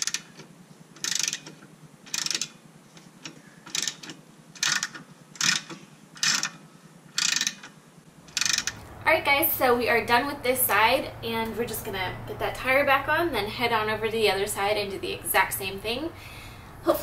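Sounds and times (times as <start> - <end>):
socket ratchet clicking: 0.0 - 0.4, 1.0 - 2.6, 3.2 - 8.9.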